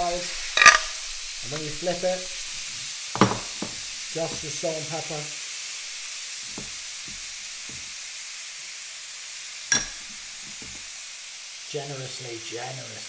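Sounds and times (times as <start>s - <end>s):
steaks sizzling in a griddle pan: 0.0s - 13.0s.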